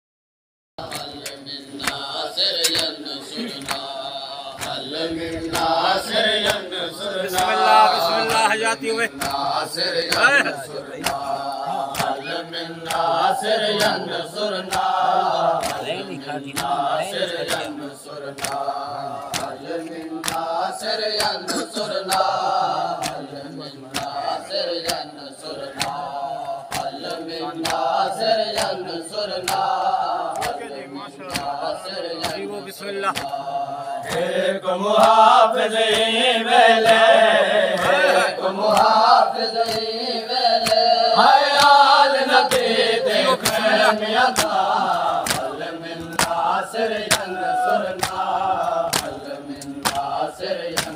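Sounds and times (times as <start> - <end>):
men chanting together: 0.8 - 50.9
chest-beating slaps: 9.1 - 14.0, 18.4 - 22.3, 25.6 - 28.8, 29.4 - 29.7, 30.3 - 30.6, 31.3 - 31.6, 33.1 - 33.4, 37.7 - 38.1, 38.7 - 50.9.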